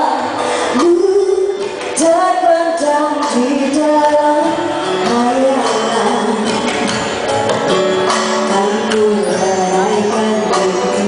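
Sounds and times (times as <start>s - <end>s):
musical accompaniment: 0.0s - 11.0s
woman singing into microphone: 0.0s - 11.0s.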